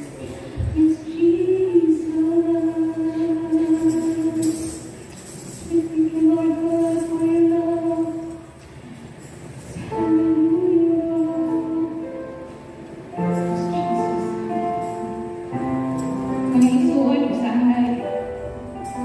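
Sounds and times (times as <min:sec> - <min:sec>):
women singing into microphones: 0:00.5 - 0:04.9, 0:05.6 - 0:08.6, 0:09.8 - 0:12.2.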